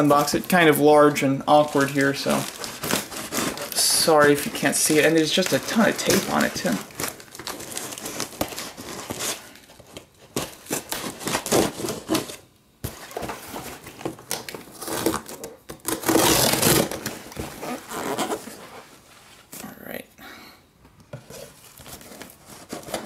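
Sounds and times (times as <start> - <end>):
packing tape ripping off cardboard: 1.5 - 18.6, 21.7 - 23.0.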